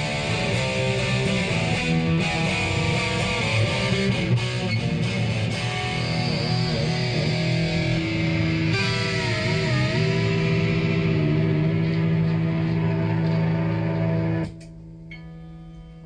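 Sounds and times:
electric guitar riffs: 0.0 - 16.0.

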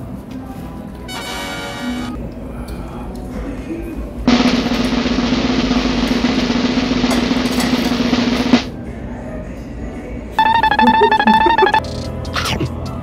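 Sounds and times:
snare drum roll: 4.3 - 8.7.

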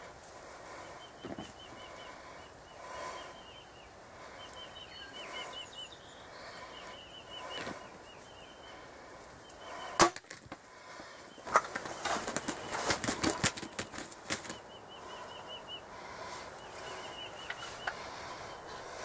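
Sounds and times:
turkey wings flapping: 11.4 - 14.8.

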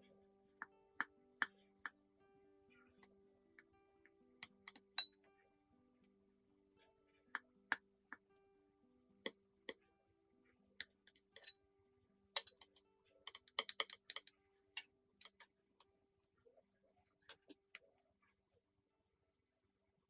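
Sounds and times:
metal cutlery clinking on plate: 11.1 - 11.6, 12.4 - 14.3, 15.2 - 15.5.

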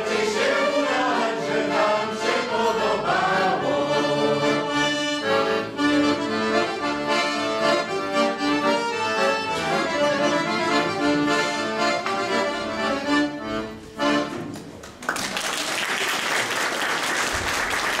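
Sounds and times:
accordion playing: 0.0 - 14.6
audience applause: 14.8 - 18.0.

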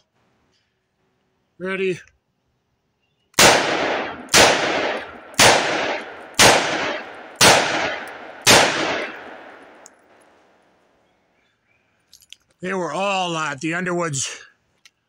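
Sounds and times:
revolver shots with echo: 3.4 - 9.8.

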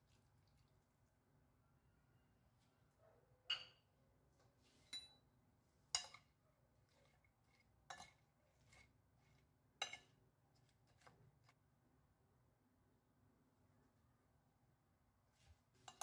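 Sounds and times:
utensil clinking on ceramic plate: 4.9 - 5.2, 5.9 - 6.3, 7.8 - 8.8, 9.8 - 10.1.

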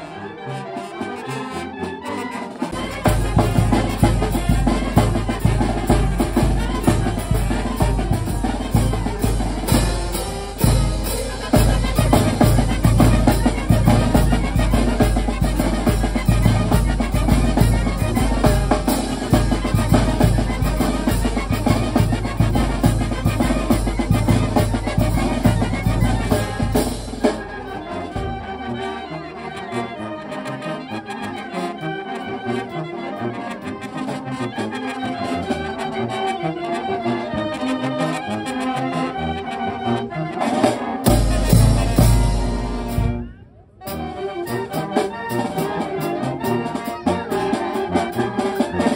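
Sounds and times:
trumpets and trombones: 0.0 - 48.9
cymbals: 2.7 - 29.0, 41.0 - 45.8.

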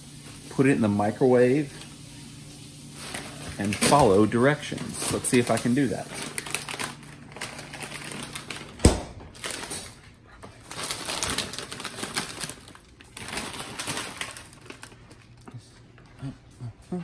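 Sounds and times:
plastic bag crinkling: 3.0 - 15.8.

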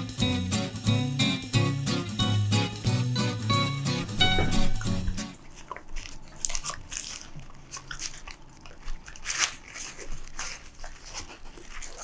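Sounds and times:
dog crunching and chewing food: 4.8 - 12.0.

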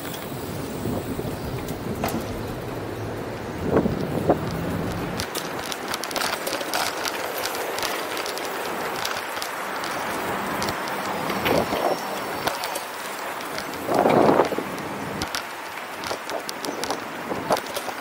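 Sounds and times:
bicycle squeaks: 0.0 - 14.0
bicycle clicks and rattles: 0.0 - 18.0
wind and tyres hissing: 0.0 - 18.0.

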